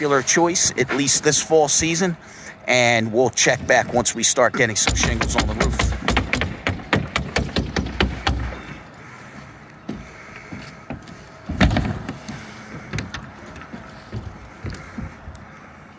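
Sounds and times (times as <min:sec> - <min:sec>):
sharp knocks: 0:04.6 - 0:08.7.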